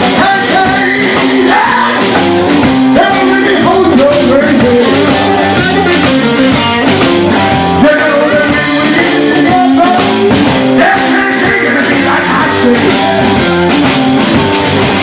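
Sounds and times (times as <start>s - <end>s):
person singing into microphone: 0.0s - 2.2s, 2.9s - 6.0s, 7.8s - 13.4s
bass: 0.0s - 15.0s
drum kit: 0.0s - 15.0s
electric guitars: 0.0s - 15.0s.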